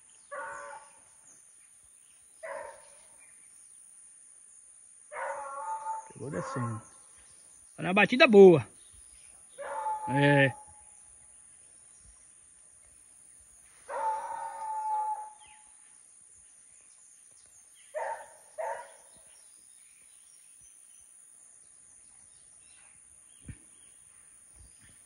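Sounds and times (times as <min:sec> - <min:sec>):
dog barking: 0:00.3 - 0:01.0, 0:02.4 - 0:03.0, 0:05.1 - 0:06.8, 0:09.6 - 0:10.2, 0:13.9 - 0:15.4, 0:17.9 - 0:19.1
hound baying: 0:05.1 - 0:06.8, 0:09.6 - 0:10.7, 0:13.9 - 0:15.4.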